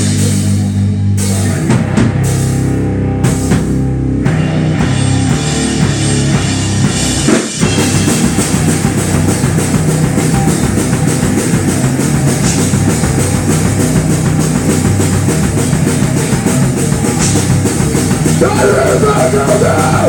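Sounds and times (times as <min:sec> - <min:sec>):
bass guitar: 0:00.0 - 0:20.0
drum kit: 0:00.0 - 0:20.0
electric guitar: 0:00.0 - 0:20.0.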